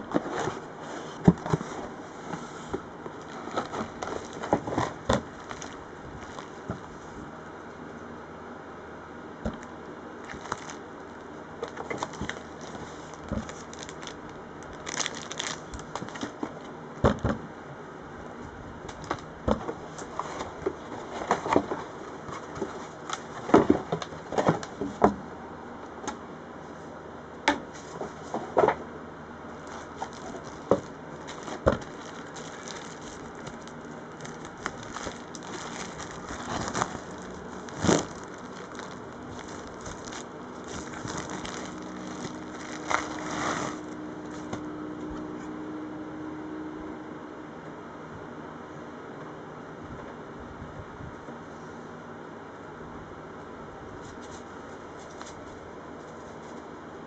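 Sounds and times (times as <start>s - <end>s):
cardboard flaps rustling: 0.0s - 7.3s, 9.4s - 17.4s, 18.9s - 25.2s, 29.6s - 44.6s
bubble wrap crinkling: 2.7s - 7.2s, 9.5s - 16.6s, 29.6s - 44.5s.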